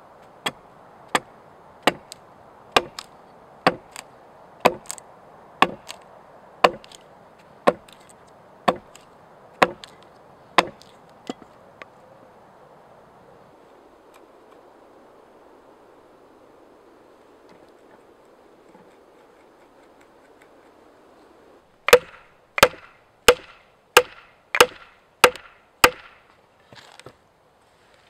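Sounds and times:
axe chopping wooden pole: 0.4 - 2.2, 2.8 - 5.0, 5.6 - 6.0, 6.6 - 7.0, 7.7 - 8.1, 8.7 - 10.0, 10.6 - 11.4, 21.8 - 26.2.

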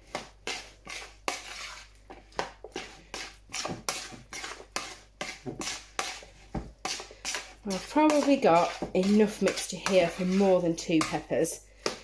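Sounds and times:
spoon scraping ceramic bowl: 0.4 - 2.0, 2.6 - 12.0.

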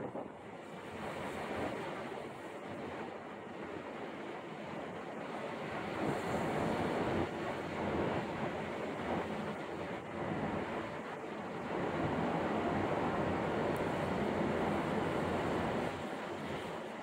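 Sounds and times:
wind blowing on microphone: 0.0 - 2.3
choppy river water: 0.0 - 17.0.

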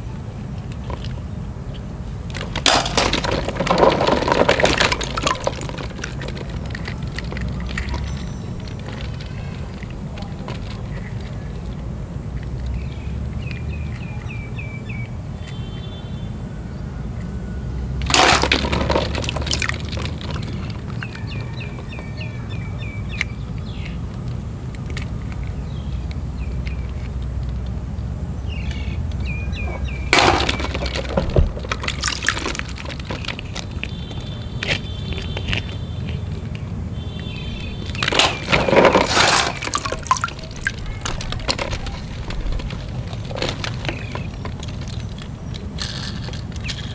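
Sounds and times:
plastic balls knocking together: 2.2 - 11.8, 18.0 - 22.1, 29.8 - 46.9
water sloshing in a tub: 4.0 - 10.0, 18.1 - 21.1, 29.8 - 34.0, 37.7 - 44.3.

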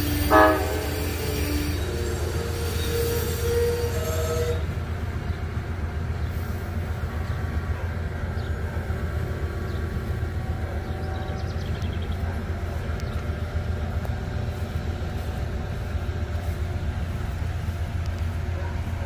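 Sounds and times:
locomotive air horn: 0.0 - 4.9
train rumbling: 0.0 - 19.0.

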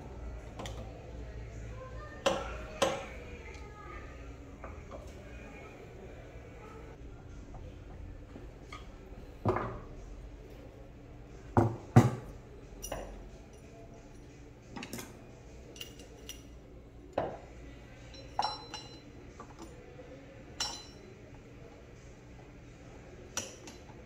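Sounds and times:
metal parts clinking on wood: 15.7 - 16.5.

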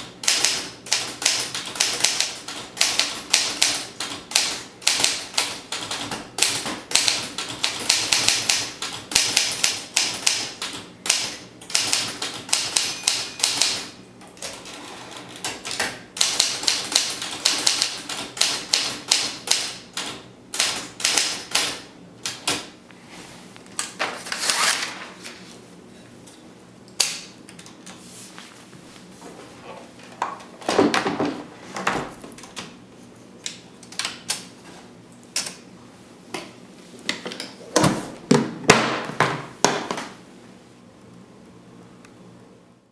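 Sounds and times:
manual typewriter typing: 0.0 - 22.7, 33.8 - 34.5.

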